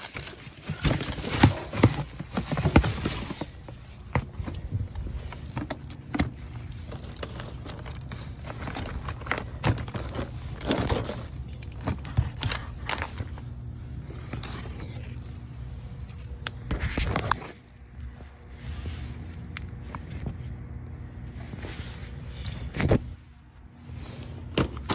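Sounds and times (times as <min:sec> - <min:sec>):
boxes scraping and knocking: 0:00.0 - 0:15.4, 0:21.3 - 0:24.9
plastic bags crinkling: 0:00.0 - 0:18.2
steady low hum: 0:00.0 - 0:24.9.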